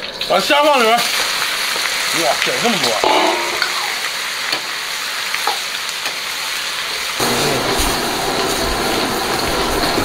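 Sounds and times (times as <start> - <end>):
shrimp sizzling in hot oil: 0.0 - 10.0
gas burner roar: 1.0 - 10.0
ladle knocking on wok: 2.9 - 4.0.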